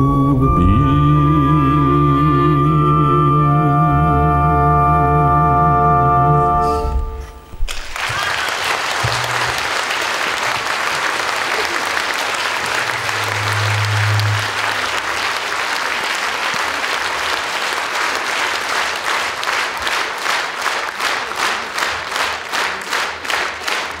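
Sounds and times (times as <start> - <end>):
audience applauding: 7.6 - 24.0
rhythmic unison clapping: 7.7 - 24.0.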